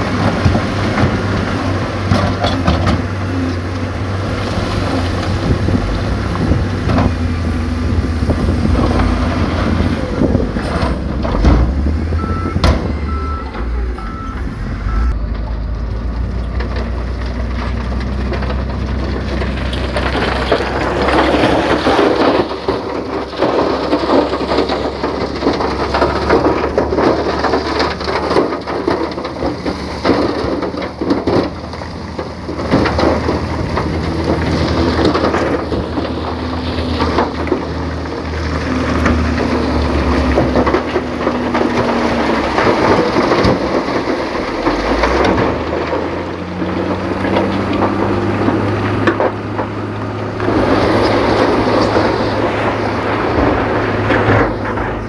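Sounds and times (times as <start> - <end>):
heavy diesel trucks droning: 0.0 - 55.0
loud coarse crackling: 0.0 - 55.0
reversing alarm beeping: 12.1 - 15.2.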